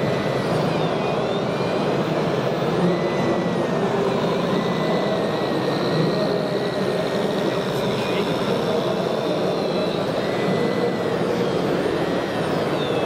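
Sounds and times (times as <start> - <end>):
hydraulic pump whine: 0.0 - 13.0.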